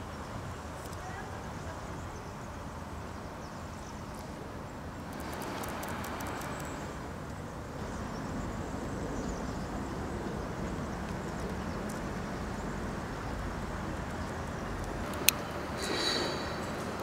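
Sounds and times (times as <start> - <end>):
street traffic noise: 0.0 - 17.0
faint ticks: 5.0 - 7.4.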